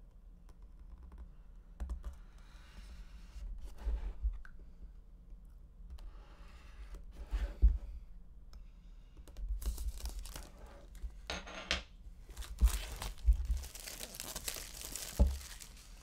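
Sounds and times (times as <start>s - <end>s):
plastic wrap tearing and crinkling: 9.6s - 10.6s, 12.3s - 16.0s.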